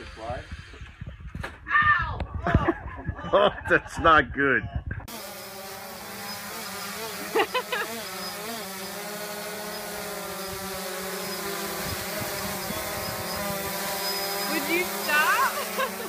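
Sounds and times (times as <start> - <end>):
drone propellers buzzing: 5.0 - 16.0.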